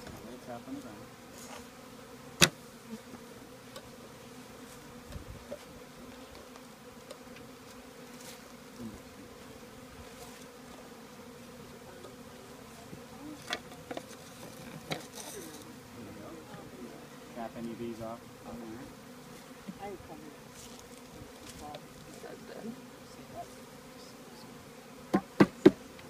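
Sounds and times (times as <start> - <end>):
bees buzzing: 0.0 - 26.0
knocks on bee package: 25.1 - 25.8.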